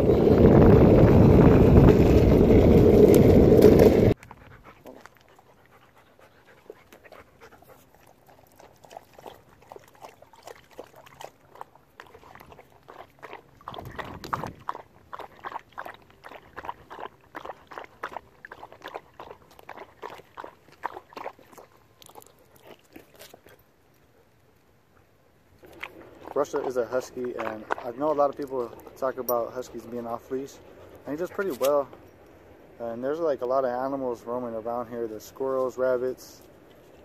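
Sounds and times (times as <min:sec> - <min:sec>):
dog lapping water: 0:04.3 - 0:23.6, 0:25.6 - 0:31.9.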